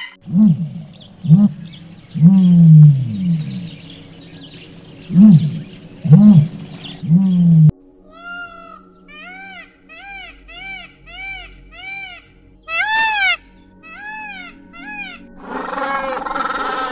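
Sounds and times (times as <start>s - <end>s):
ostrich deep low calls: 0.2s - 7.7s.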